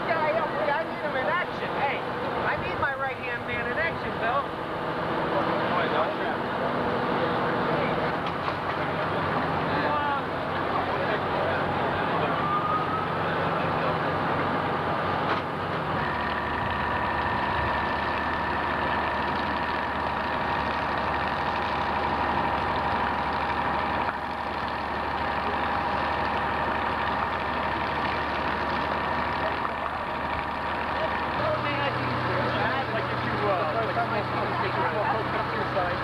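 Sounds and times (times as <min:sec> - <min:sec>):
fire engine running: 0:00.0 - 0:36.0.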